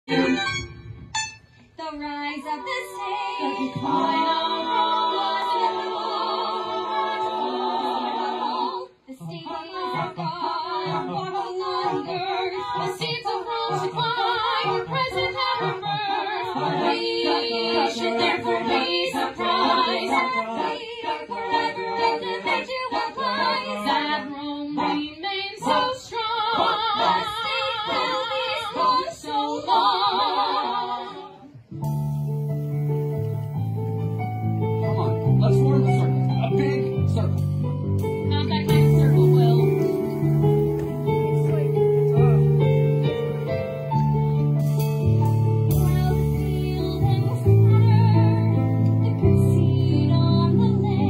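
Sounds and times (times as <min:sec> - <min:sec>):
group singing unaccompanied: 0:02.0 - 0:31.6.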